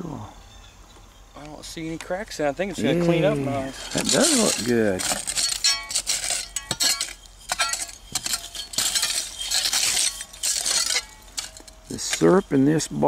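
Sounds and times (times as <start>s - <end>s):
glass scraping: 2.8s - 13.0s
glass clinking: 3.7s - 13.0s.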